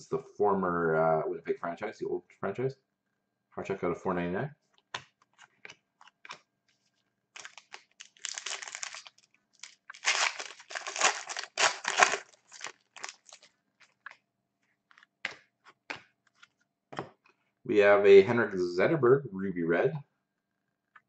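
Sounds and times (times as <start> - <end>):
foil wrapper tearing and crinkling: 7.3 - 14.0.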